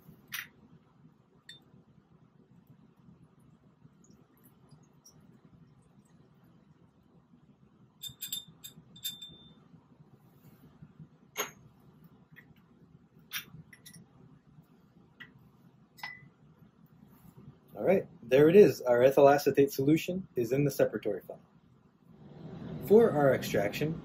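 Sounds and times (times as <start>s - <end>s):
glassware clinking: 8.0s - 9.6s, 11.4s - 11.6s, 16.0s - 16.3s.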